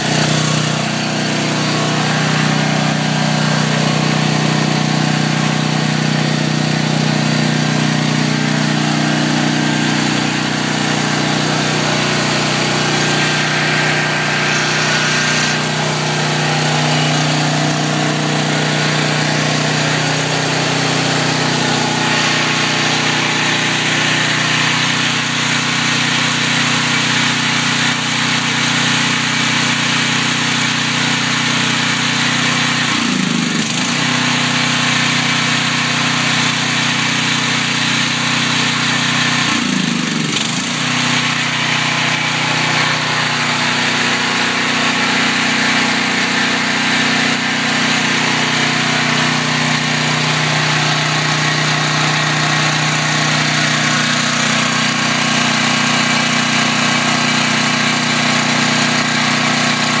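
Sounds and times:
generator engine running: 0.0 - 60.0.

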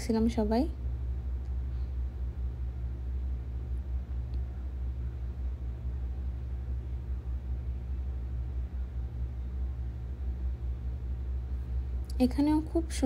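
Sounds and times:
faint hum: 0.0 - 13.0
low rumble: 0.0 - 13.0.

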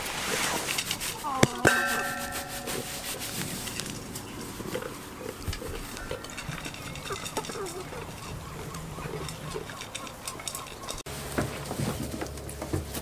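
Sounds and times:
farm animal calling: 0.8 - 11.0
soft low animal calls: 4.0 - 11.0.

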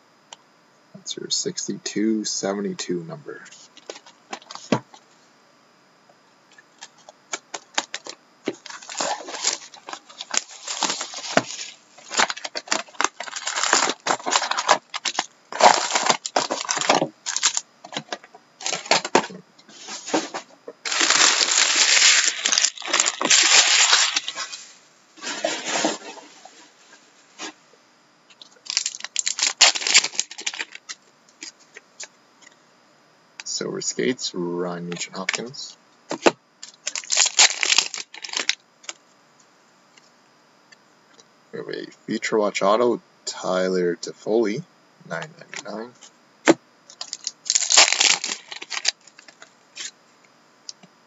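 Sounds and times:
plastic pack tearing open: 6.8 - 19.3, 20.8 - 24.6, 28.6 - 30.9, 36.1 - 39.0, 46.9 - 49.9
plastic wrapper crackling: 6.8 - 19.4, 20.8 - 24.6, 28.5 - 31.5, 36.1 - 39.0, 46.9 - 49.9.

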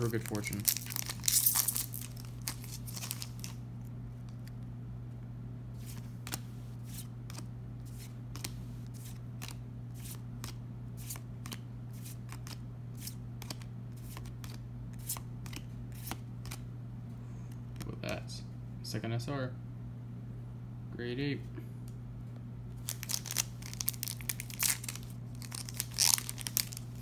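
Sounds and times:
foil wrapper rustling: 0.0 - 3.6, 22.8 - 27.0.

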